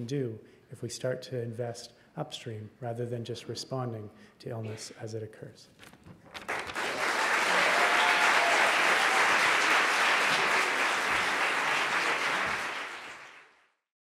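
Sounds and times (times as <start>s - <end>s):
audience applauding: 6.4s - 13.7s.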